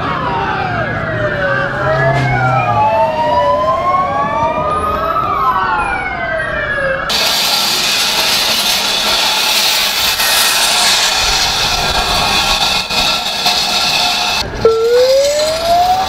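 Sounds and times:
emergency sirens wailing: 0.0 - 7.3, 14.4 - 16.0.

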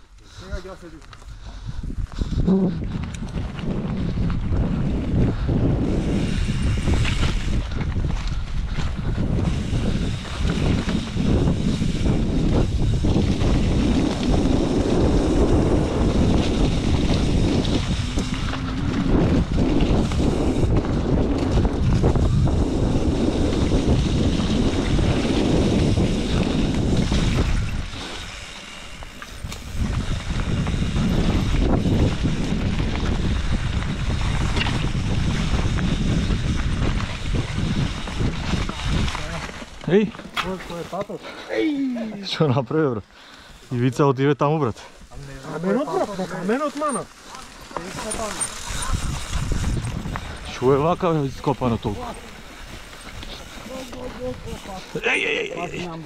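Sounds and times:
wind buffeting microphone: 0.0 - 41.0, 44.8 - 56.0
moving vehicle: 12.6 - 28.5.

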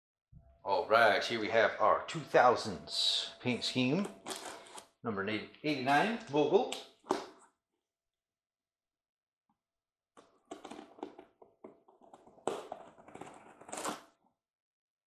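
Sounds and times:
cardboard packaging rustling: 4.2 - 4.8, 10.4 - 14.2.

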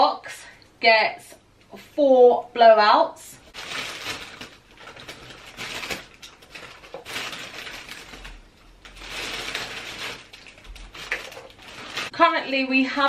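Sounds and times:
plastic bag crinkling: 3.5 - 12.3.

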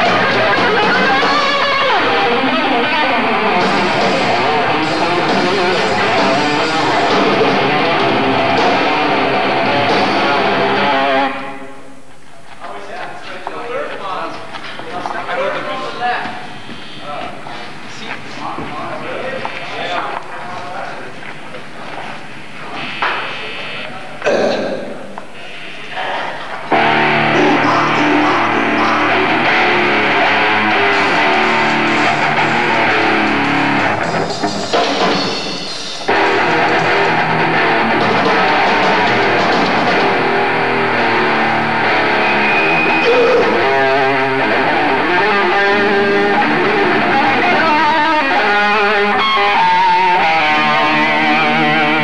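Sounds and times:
drums: 0.0 - 11.4, 26.6 - 52.0
distorted electric guitars: 0.0 - 12.0, 22.3 - 52.0.

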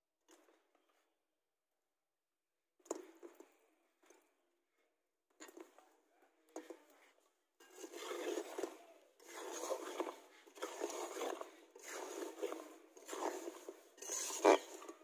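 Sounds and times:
metal spatula scraping a pan: 7.6 - 15.0.

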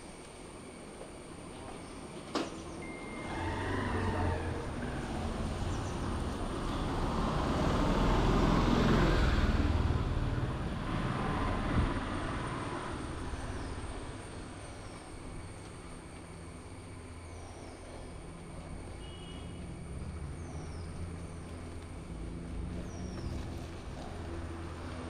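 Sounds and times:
brief high beep: 2.8 - 3.3
large vehicle passing: 3.0 - 14.6.

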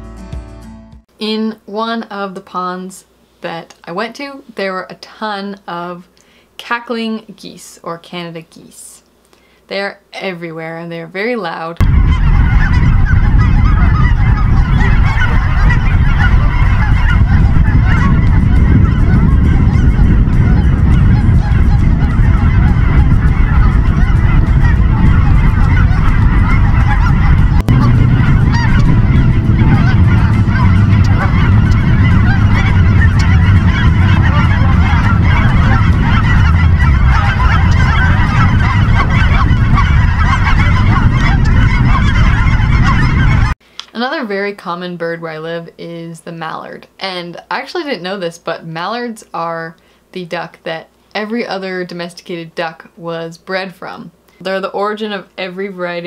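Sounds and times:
flock of geese honking: 11.4 - 49.5
low rumble: 11.8 - 43.6.

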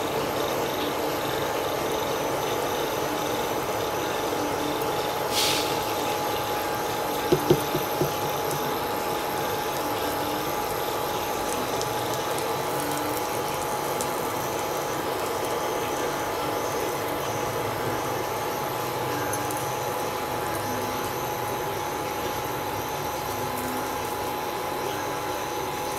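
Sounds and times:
batter sizzling in oil: 0.0 - 25.9
brief hiss: 5.3 - 5.8
quick knocks: 7.3 - 8.3.

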